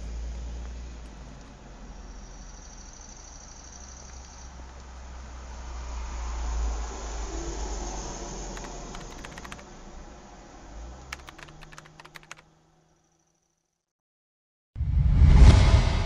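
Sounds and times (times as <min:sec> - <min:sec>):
laptop keyboard typing: 0:08.5 - 0:09.7, 0:11.1 - 0:12.4.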